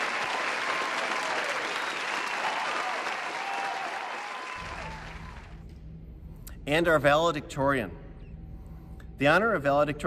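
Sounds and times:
crowd applause: 0:00.0 - 0:05.6
faint cheering voices: 0:00.2 - 0:05.4.

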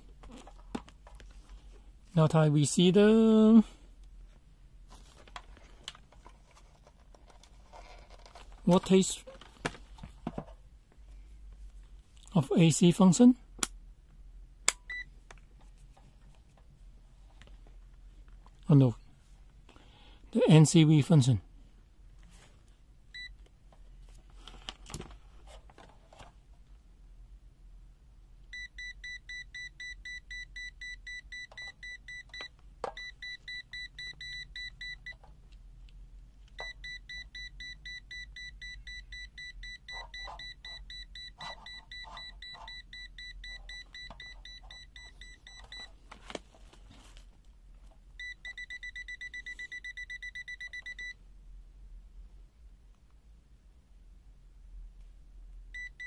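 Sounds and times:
multimeter beeping rapid pulses: 0:36.6 - 0:45.9.

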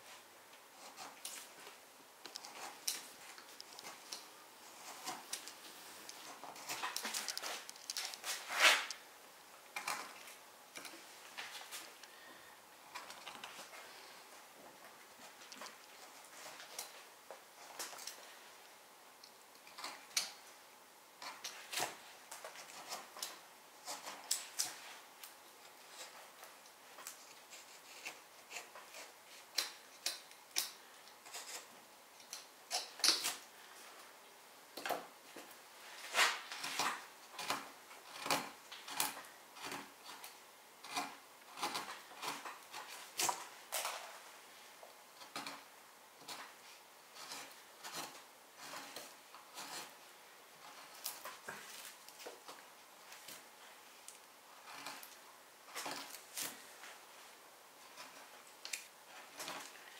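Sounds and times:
knife cutting wood: 0:36.1 - 0:44.0, 0:54.6 - 0:56.6.

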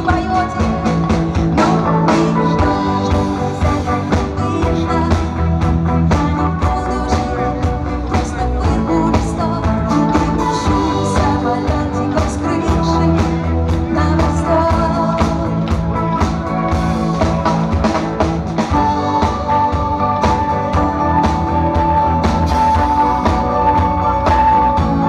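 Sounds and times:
woman singing: 0:00.0 - 0:16.4
bass guitar: 0:00.0 - 0:25.0
drum kit: 0:00.0 - 0:25.0
electric guitar: 0:00.0 - 0:25.0.

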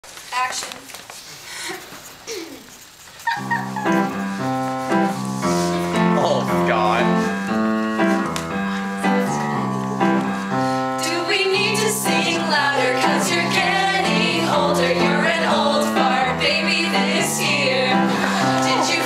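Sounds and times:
keyboard playing chords: 0:03.4 - 0:19.0
group of voices singing: 0:10.9 - 0:19.0.

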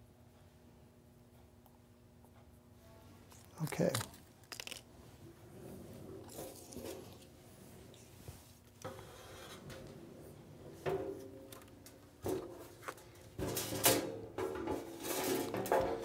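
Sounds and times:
knocks and scrapes on metal tray: 0:12.2 - 0:16.0.

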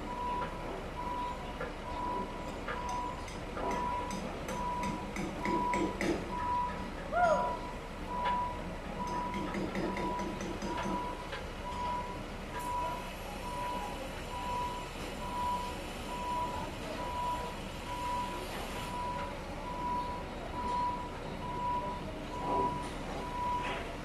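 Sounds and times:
backup alarm beeping: 0:10.0 - 0:23.8.

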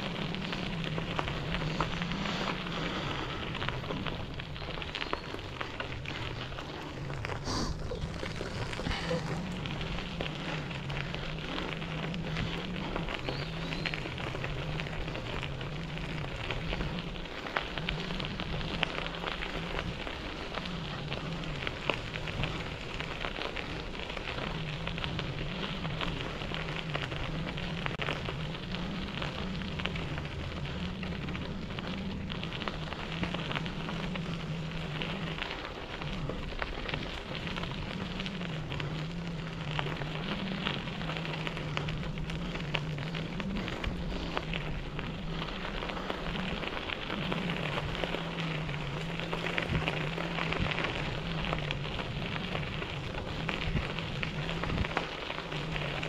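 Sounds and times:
bicycle tyres on gravel: 0:00.0 - 0:56.0
low wavering hum: 0:00.0 - 0:56.0.

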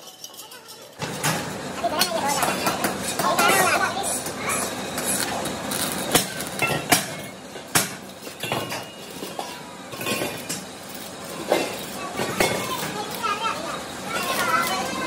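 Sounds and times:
arc welding crackling: 0:10.4 - 0:15.0.

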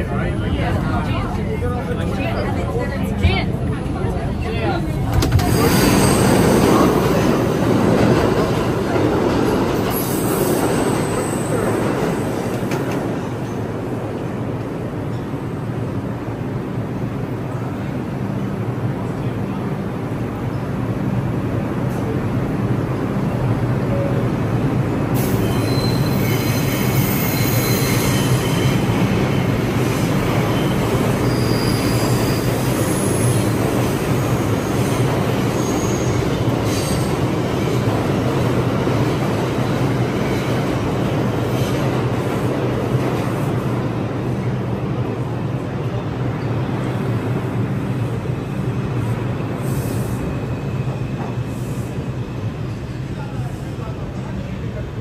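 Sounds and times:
subway train rumble: 0:00.0 - 0:55.0
train wheels squealing: 0:05.4 - 0:07.0, 0:09.8 - 0:12.5, 0:25.2 - 0:37.8, 0:49.6 - 0:53.0.

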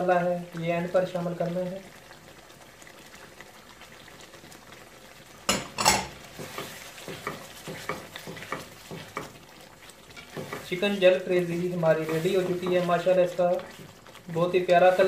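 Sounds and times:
curry sizzling in a pot: 0:00.0 - 0:15.0
spatula knocking against a pot: 0:05.5 - 0:09.4
spatula scraping a pot: 0:06.4 - 0:10.8, 0:11.8 - 0:13.0.

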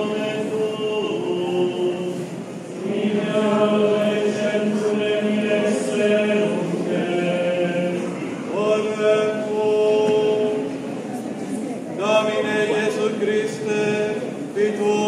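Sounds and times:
men chanting in long notes: 0:00.0 - 0:10.7.

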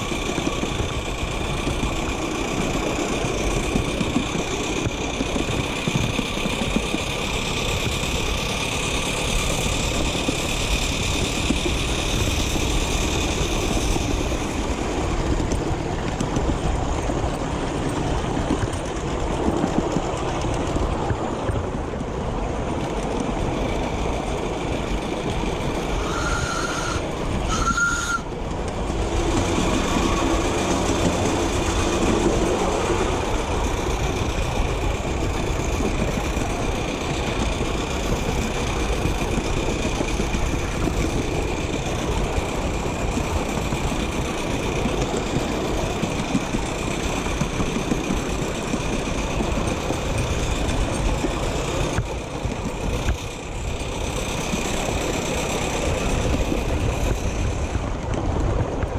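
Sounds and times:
train wheels clattering on rail: 0:00.0 - 0:58.9
short high tones: 0:26.0 - 0:28.3.

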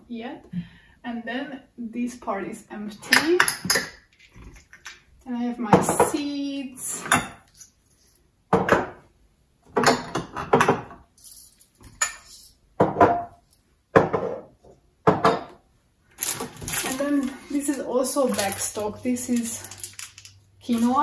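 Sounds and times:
glass jars clinking: 0:09.8 - 0:13.4.

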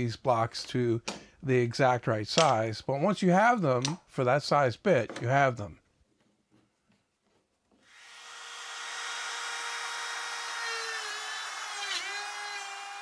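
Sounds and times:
trim router running: 0:07.9 - 0:13.0.

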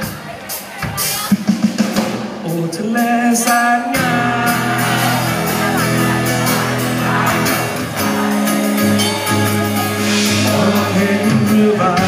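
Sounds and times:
steady drum beat: 0:00.0 - 0:12.0
person singing: 0:02.4 - 0:12.0
electric guitars: 0:03.4 - 0:12.0
bass guitar: 0:03.6 - 0:12.0.

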